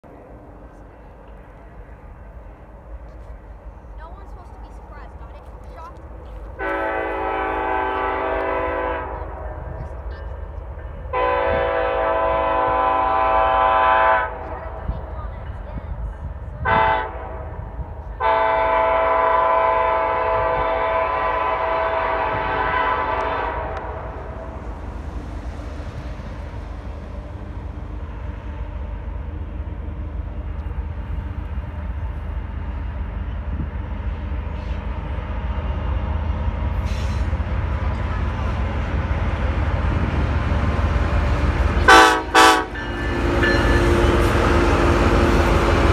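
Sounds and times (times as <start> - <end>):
train rumble: 0.0 - 45.9
locomotive air horn blasts: 6.6 - 9.6, 11.1 - 14.6, 16.6 - 17.6, 18.2 - 24.5, 41.8 - 44.5.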